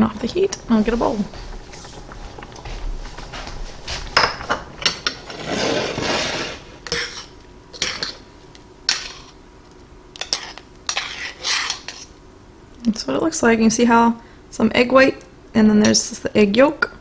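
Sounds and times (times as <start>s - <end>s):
spoon scraping saucepan: 4.2s - 8.2s, 10.2s - 12.1s.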